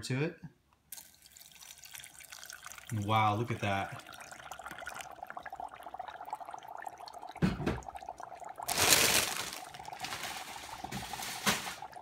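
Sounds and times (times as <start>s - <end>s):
dry ice bubbling in water: 1.0s - 12.0s
dull thump: 7.4s - 7.8s.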